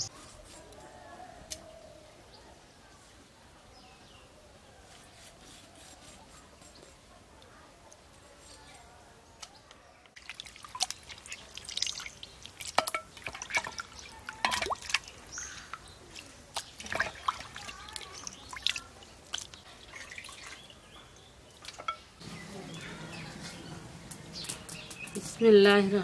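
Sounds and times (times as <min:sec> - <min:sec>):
water splashing in a steel bowl: 0:10.2 - 0:20.9.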